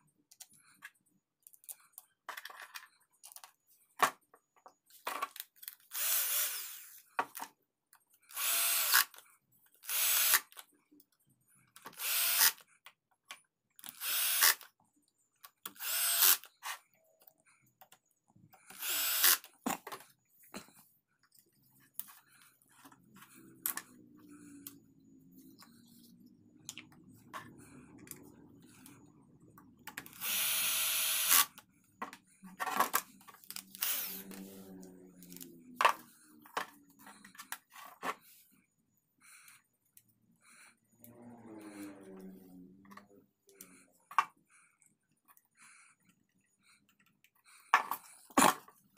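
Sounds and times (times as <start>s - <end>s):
drill driving screws: 5.9s - 6.9s, 8.3s - 9.2s, 9.8s - 10.6s, 12.0s - 12.6s, 13.9s - 14.6s, 15.7s - 16.5s, 18.7s - 19.5s, 30.1s - 31.5s, 33.6s - 34.4s.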